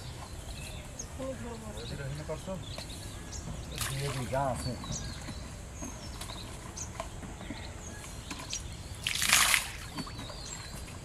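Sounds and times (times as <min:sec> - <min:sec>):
water splash: 0:03.8 - 0:04.4, 0:09.0 - 0:10.2.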